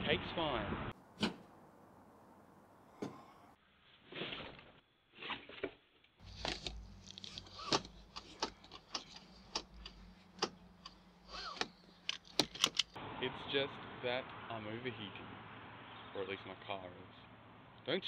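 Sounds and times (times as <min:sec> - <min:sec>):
sharp clicks and knocks: 0:06.2 - 0:13.0.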